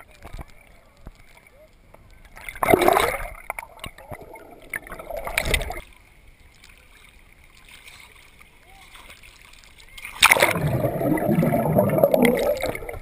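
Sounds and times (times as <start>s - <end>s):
water churning and splashing: 2.4s - 6.0s, 6.8s - 13.0s.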